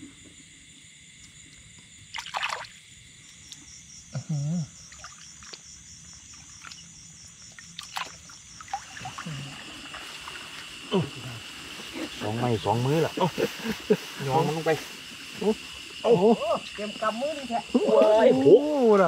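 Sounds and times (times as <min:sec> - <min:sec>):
insect chorus: 0:00.0 - 0:19.0
hand splashing in water: 0:02.1 - 0:02.7, 0:07.8 - 0:10.4.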